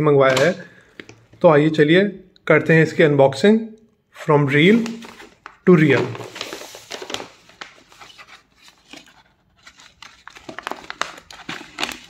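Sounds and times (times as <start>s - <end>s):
paper bag rustling and crinkling: 4.7s - 12.0s.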